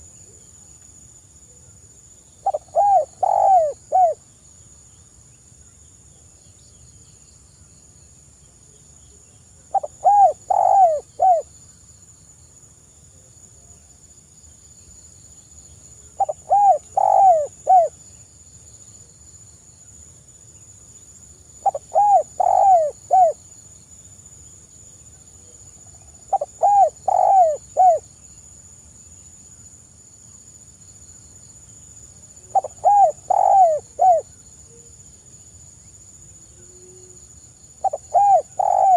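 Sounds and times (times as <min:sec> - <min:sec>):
dove cooing: 0:02.4 - 0:04.2, 0:09.7 - 0:11.5, 0:16.2 - 0:18.0, 0:21.6 - 0:23.4, 0:26.3 - 0:28.0, 0:32.5 - 0:34.3, 0:37.8 - 0:38.9.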